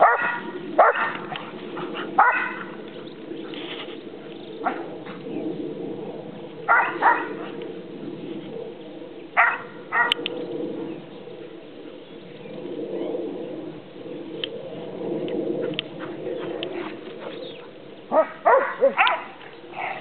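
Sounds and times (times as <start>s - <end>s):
dog barking sharply: 0.0s - 1.2s, 2.2s - 2.7s, 6.7s - 7.3s, 18.2s - 19.3s.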